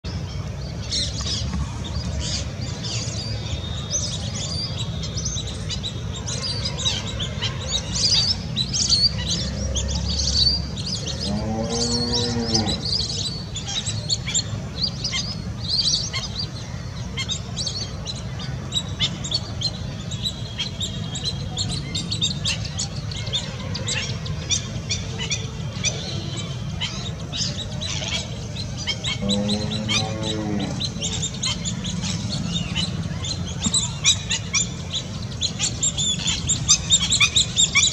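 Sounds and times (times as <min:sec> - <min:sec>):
ducks whistling twitters: 0:18.7 - 0:37.9.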